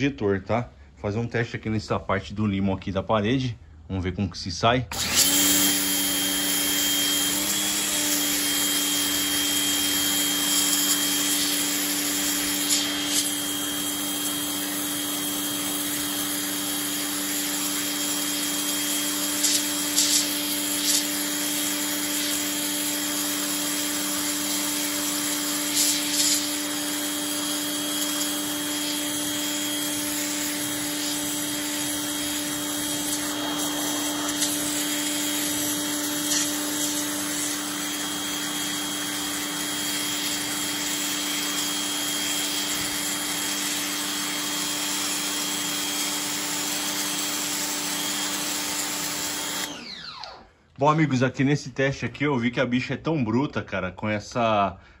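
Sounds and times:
pressure washer motor humming: 0:04.9 - 0:50.4
water jet hissing: 0:07.4 - 0:43.9.

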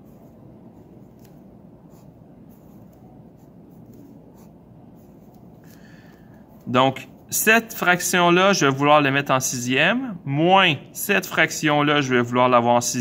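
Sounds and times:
pencil scratching on paper: 0:00.0 - 0:05.5.

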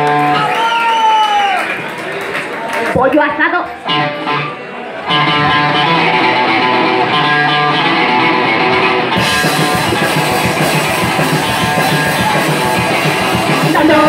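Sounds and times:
electric guitar riff: 0:00.0 - 0:00.6, 0:03.8 - 0:14.0
drums and cymbals: 0:09.2 - 0:14.0.

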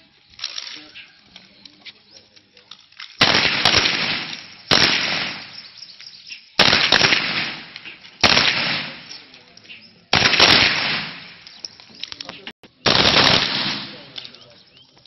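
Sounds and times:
gunfire echo: 0:03.2 - 0:05.7, 0:06.6 - 0:09.3, 0:10.1 - 0:11.5, 0:12.8 - 0:14.2.

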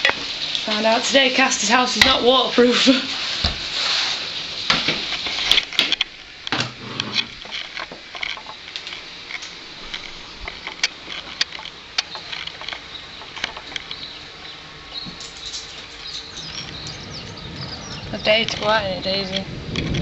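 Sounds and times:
hailstones ticking: 0:00.0 - 0:03.7, 0:07.2 - 0:20.0
faint hiss: 0:00.0 - 0:20.0.

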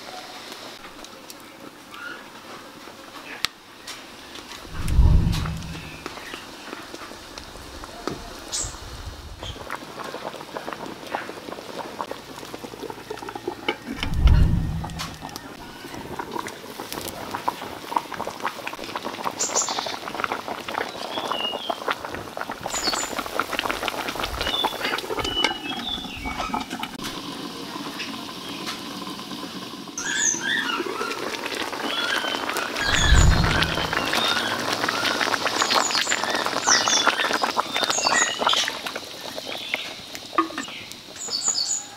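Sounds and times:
broth simmering with pops: 0:02.7 - 0:41.6
fire crackling: 0:04.5 - 0:06.4, 0:08.7 - 0:15.6, 0:32.5 - 0:35.9.

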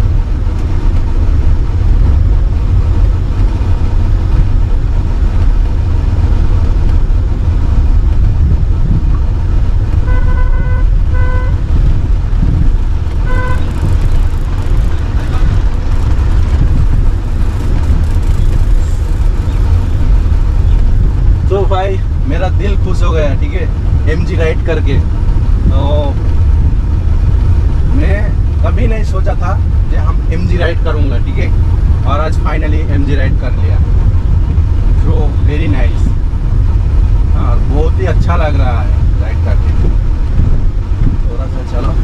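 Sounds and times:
car cabin low rumble: 0:00.0 - 0:42.0
car horn toots: 0:10.0 - 0:11.7, 0:13.2 - 0:14.0.

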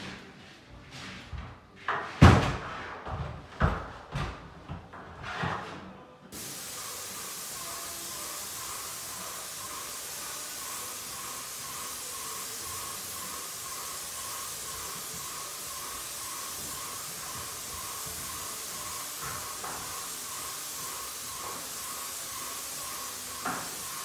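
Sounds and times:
paint spray gun hissing: 0:06.3 - 0:24.0.

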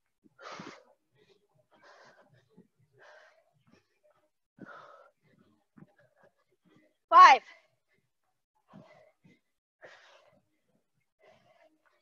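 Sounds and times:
woman breathing hard: 0:00.2 - 0:12.0.

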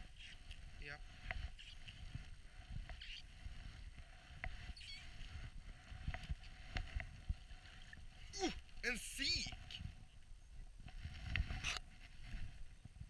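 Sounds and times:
brief squeaks: 0:04.8 - 0:05.1.

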